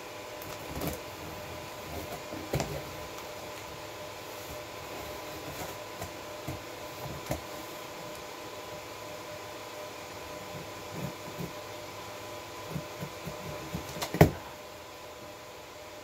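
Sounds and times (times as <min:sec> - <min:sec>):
computer fans humming: 0:00.0 - 0:16.0
cardboard box scrapes and knocks: 0:00.7 - 0:03.0, 0:04.3 - 0:07.5.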